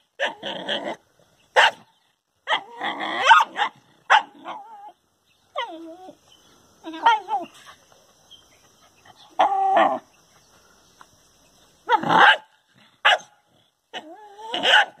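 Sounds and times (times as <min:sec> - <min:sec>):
dog barking: 0:01.6 - 0:01.8, 0:02.5 - 0:04.6, 0:11.9 - 0:13.4, 0:14.0 - 0:15.0.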